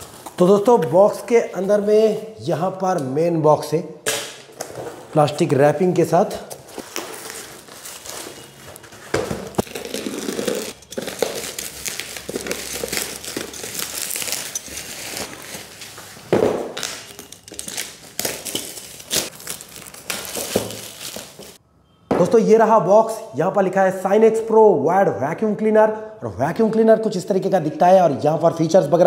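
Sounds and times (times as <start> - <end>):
plastic packaging rustling: 6.3 - 21.6.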